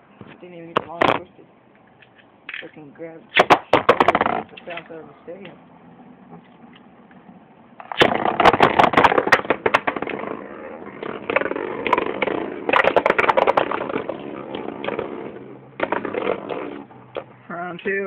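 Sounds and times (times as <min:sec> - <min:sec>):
spinning tops whirring and scraping: 0:07.8 - 0:17.3.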